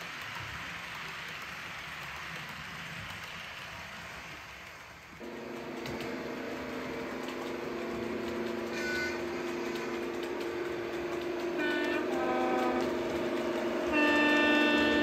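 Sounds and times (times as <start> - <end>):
model diesel locomotive engine drone: 0.0 - 15.0
high horn toot: 11.3 - 15.0.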